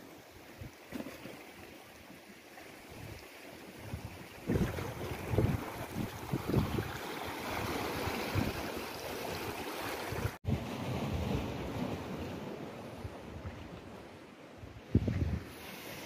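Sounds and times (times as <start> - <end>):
water lapping around rocks: 0.0 - 16.0
wind gusting on microphone: 3.9 - 8.7, 14.6 - 15.6.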